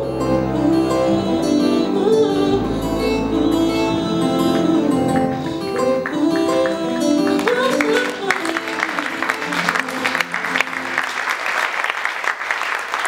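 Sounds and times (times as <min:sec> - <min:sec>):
plucked string music: 0:00.0 - 0:10.8
audience applause: 0:05.0 - 0:13.0.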